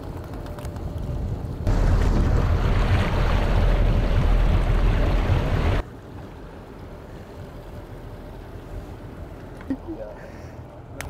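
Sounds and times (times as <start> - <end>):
boat engine rumble: 0.0 - 11.0
wind: 0.0 - 11.0
rushing water: 1.7 - 5.8.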